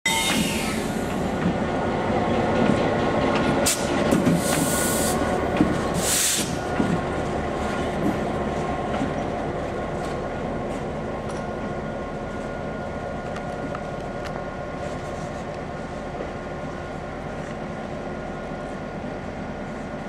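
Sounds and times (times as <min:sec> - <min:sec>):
diesel locomotive rumbling: 0:00.1 - 0:20.0
short bursts of hiss: 0:06.0 - 0:06.6.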